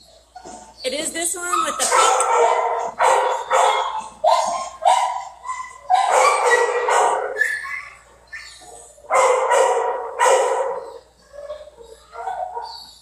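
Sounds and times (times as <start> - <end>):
dogs barking: 1.4 - 13.0.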